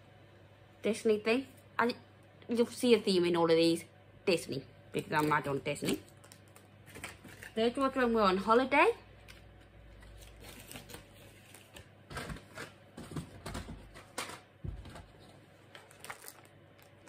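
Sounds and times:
packaging rustling: 9.9 - 17.0.

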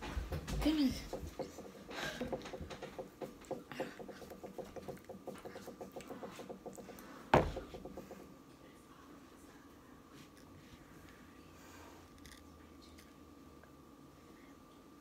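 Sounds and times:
loud knock: 6.4 - 8.2.

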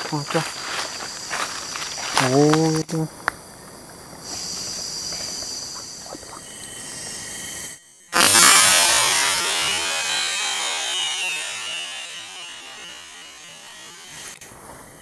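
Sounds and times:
insects buzzing: 0.0 - 15.0
loud harsh buzz: 8.2 - 14.4.

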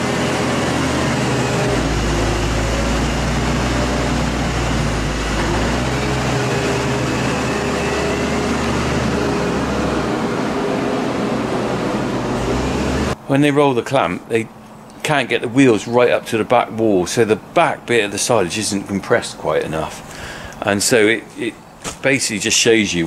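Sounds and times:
tractor engine running: 0.0 - 13.2.

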